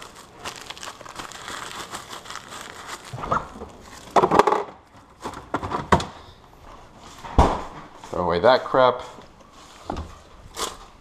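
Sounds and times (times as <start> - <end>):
plastic wrap crinkling: 0.0 - 5.5.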